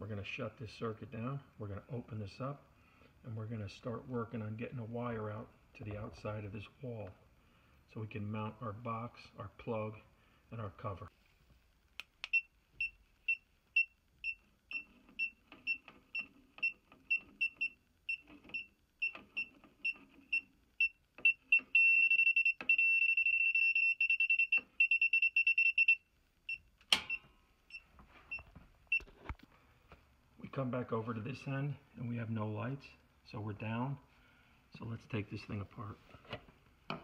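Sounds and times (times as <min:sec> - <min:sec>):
circuit breaker switch click: 0:26.8 - 0:27.3.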